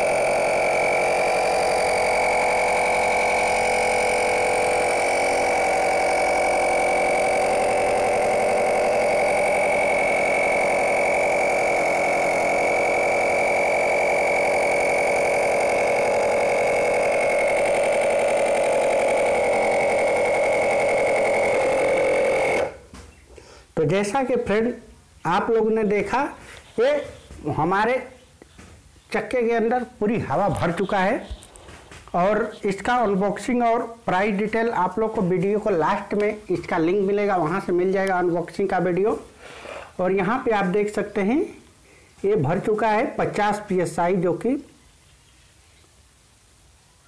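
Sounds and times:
air compressor pump running: 0:00.0 - 0:23.0, 0:30.3 - 0:43.7.

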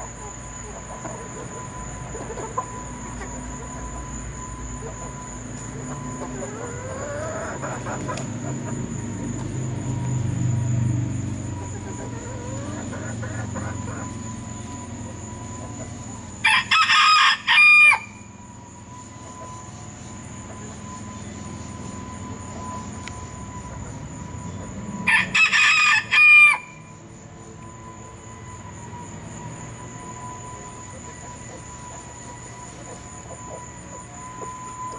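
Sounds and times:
rooster crowing: 0:16.4 - 0:18.4, 0:24.4 - 0:26.9.

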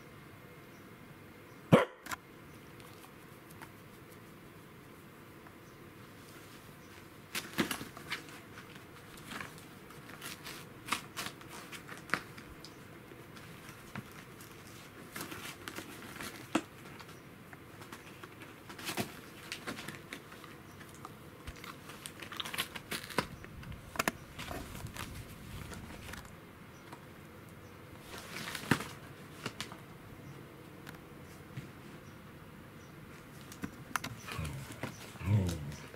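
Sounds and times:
sharp cardboard crackles: 0:07.3 - 0:12.5, 0:13.4 - 0:26.3, 0:28.0 - 0:29.8
cardboard box crinkling and rustling: 0:21.5 - 0:23.3.

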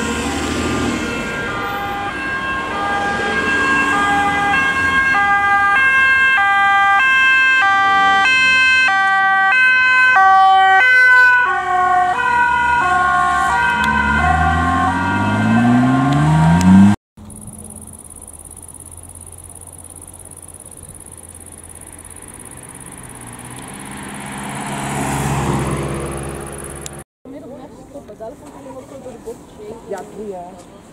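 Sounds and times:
two-tone ambulance siren: 0:00.0 - 0:27.0
engine accelerating: 0:13.4 - 0:27.0
faint high whine: 0:17.2 - 0:24.2.

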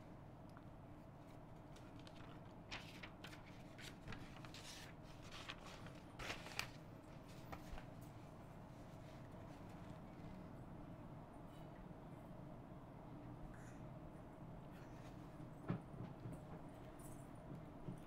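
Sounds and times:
low steady room hum: 0:00.0 - 0:18.0
faint clicks and rustles: 0:01.2 - 0:10.5.

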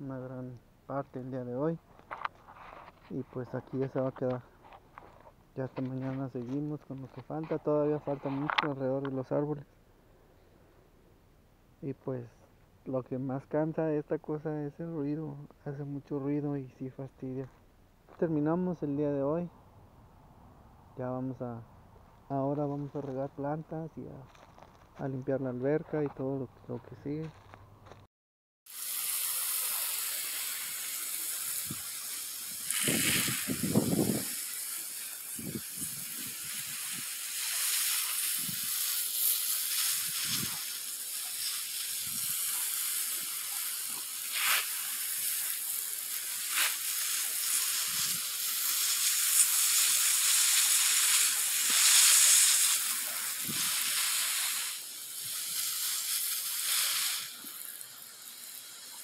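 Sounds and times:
garden hose spraying water: 0:28.7 - 0:59.0.

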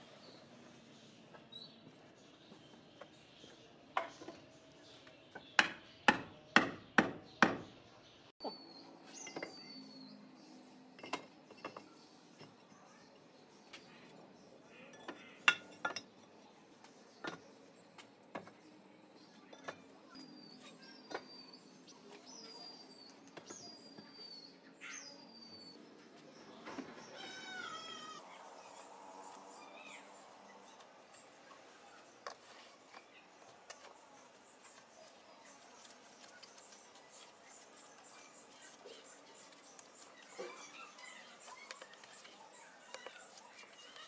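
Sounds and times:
bricks clinking on bricks: 0:10.9 - 0:12.6, 0:14.9 - 0:16.2, 0:17.2 - 0:17.6.

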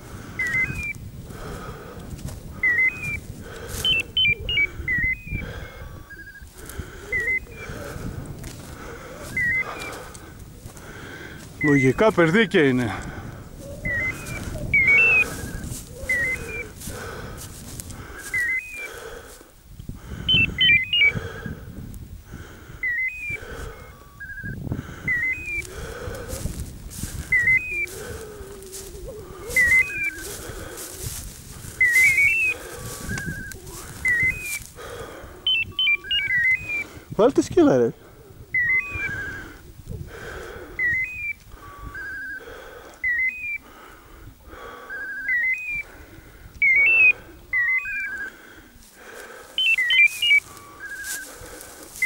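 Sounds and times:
footsteps through dry grass: 0:00.0 - 0:22.3, 0:23.2 - 0:42.4, 0:44.6 - 0:52.0
wind rustle: 0:00.0 - 0:52.0
small bird chirping: 0:03.8 - 0:05.4, 0:09.3 - 0:10.0, 0:13.6 - 0:16.7, 0:20.3 - 0:21.1, 0:35.5 - 0:36.8, 0:49.6 - 0:51.2.

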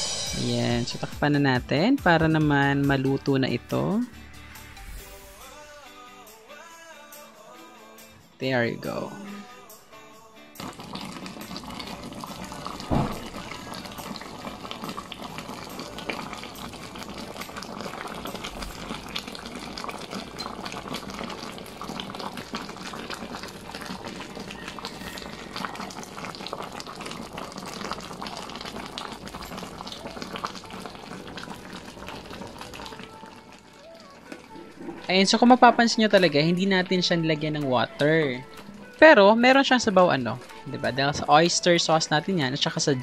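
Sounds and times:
sauce bubbling in a skillet: 0:10.6 - 0:36.9
sharp knock: 0:12.9 - 0:13.2.

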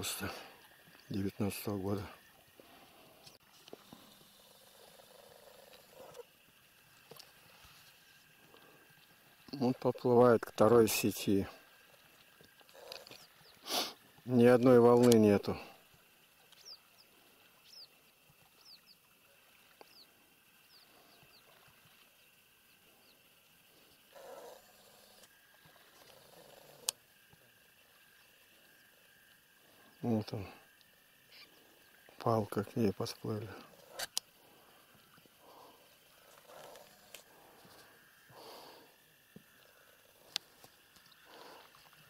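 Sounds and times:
quiet hiss: 0:00.0 - 0:42.0
faint clicks: 0:12.2 - 0:13.3, 0:14.9 - 0:15.3, 0:33.6 - 0:34.3, 0:39.3 - 0:41.9
soft breaths: 0:33.5 - 0:42.0.

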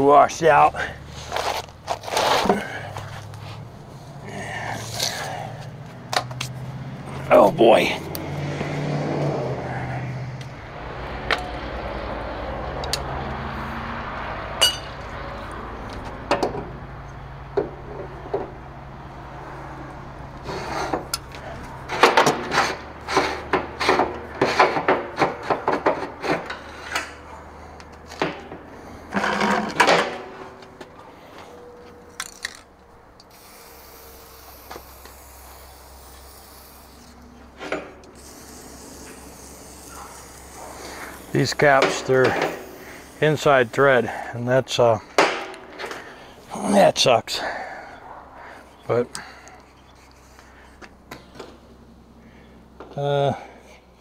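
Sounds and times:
handling knocks clicks and scrapes: 0:00.7 - 0:08.8, 0:14.6 - 0:18.6, 0:20.4 - 0:33.4, 0:37.0 - 0:38.3, 0:39.0 - 0:46.6, 0:48.4 - 0:51.7.

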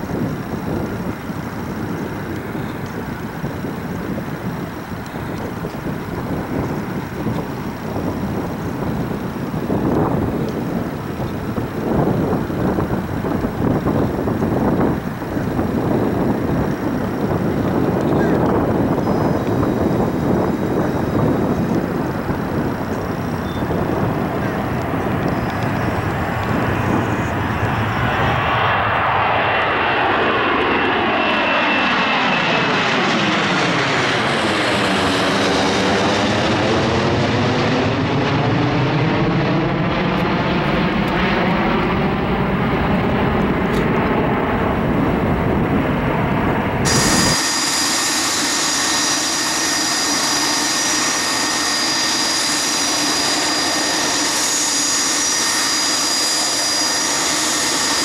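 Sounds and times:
jet airliner roaring overhead: 0:00.0 - 0:58.0
deicing spray hiss with whine: 0:46.8 - 0:58.0.

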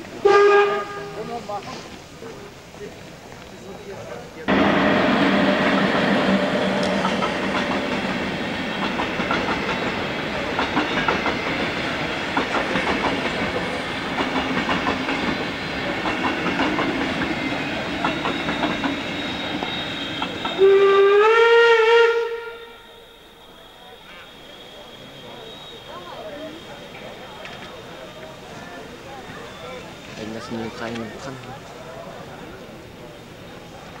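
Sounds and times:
train rolling rumble: 0:00.0 - 0:34.0
steam locomotive whistle: 0:00.2 - 0:01.4, 0:04.5 - 0:07.8, 0:17.4 - 0:30.0.

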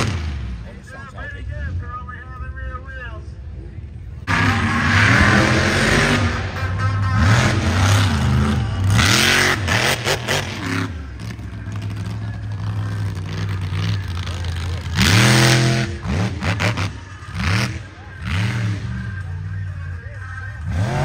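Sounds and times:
truck engine revving hard: 0:00.0 - 0:00.7, 0:04.2 - 0:19.4, 0:20.6 - 0:21.0.

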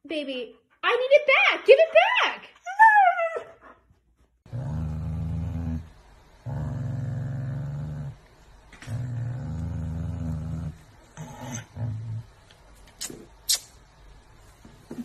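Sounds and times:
dog growling: 0:04.4 - 0:12.4.

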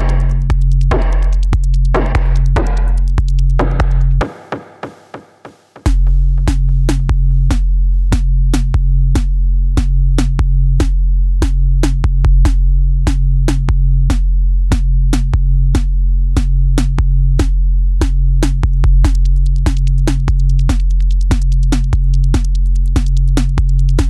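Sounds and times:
deep bass: 0:00.0 - 0:04.2, 0:05.9 - 0:24.0
drum machine beat: 0:00.0 - 0:24.0.

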